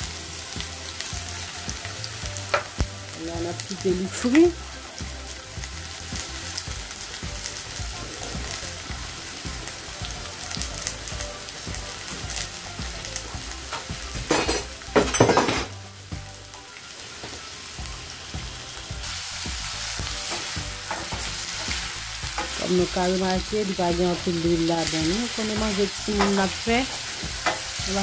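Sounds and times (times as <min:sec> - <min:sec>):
vegetables sizzling in hot oil: 0:00.0 - 0:28.0.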